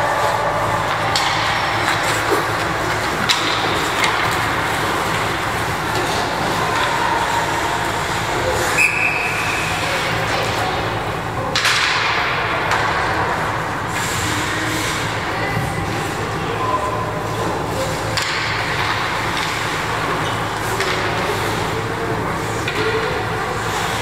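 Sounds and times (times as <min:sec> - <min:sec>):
skating and arena noise: 0:00.0 - 0:24.0
referee's whistle blast: 0:08.8 - 0:09.4.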